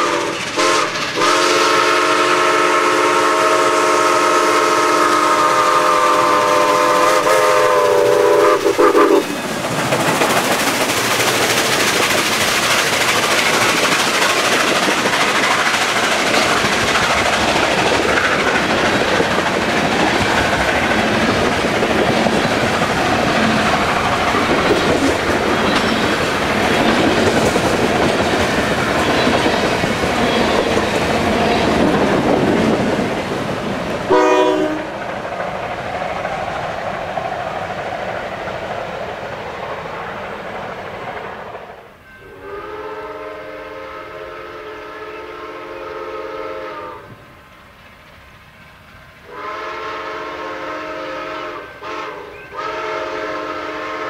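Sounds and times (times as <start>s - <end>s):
locomotive horn blasts: 0.0s - 9.2s, 34.1s - 34.9s, 42.2s - 47.2s, 49.3s - 54.0s
train wheels clacking over rails: 0.0s - 41.9s.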